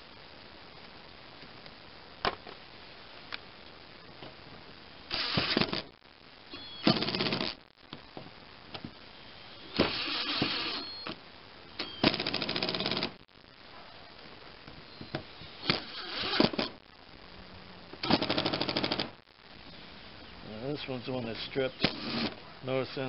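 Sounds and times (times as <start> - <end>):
impact driver hammering screws: 5.1 - 5.8.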